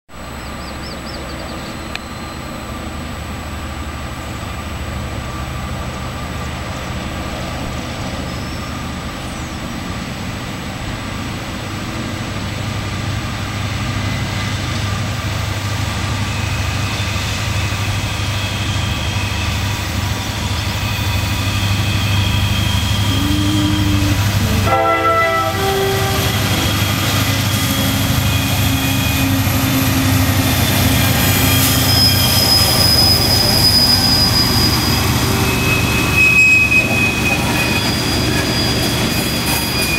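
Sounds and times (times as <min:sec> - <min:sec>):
diesel locomotive engines: 0:00.2 - 0:39.9
train horn blast: 0:22.8 - 0:29.4.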